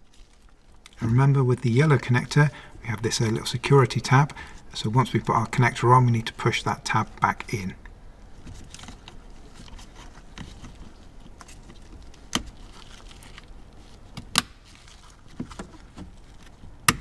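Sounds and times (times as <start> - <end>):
plastic parts rustling: 0.0 - 5.8, 8.3 - 16.8.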